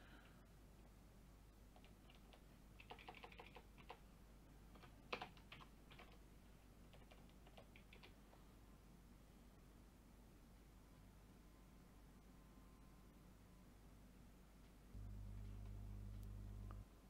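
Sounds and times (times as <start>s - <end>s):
typing on computer keyboard: 1.7s - 4.0s, 4.7s - 6.2s, 6.9s - 8.3s.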